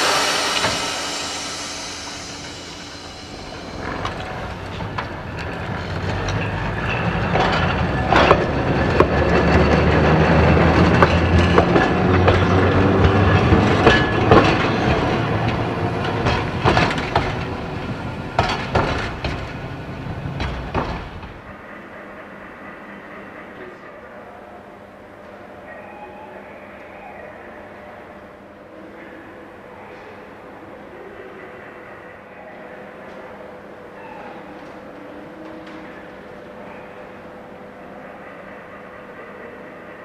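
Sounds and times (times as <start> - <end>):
tram motor hum: 0.0 - 21.6.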